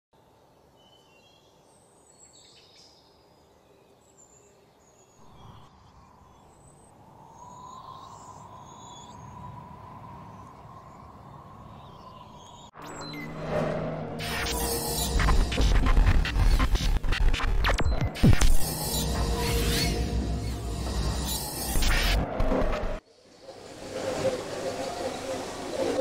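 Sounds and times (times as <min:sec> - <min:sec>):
birds chirping: 0:00.6 - 0:13.3.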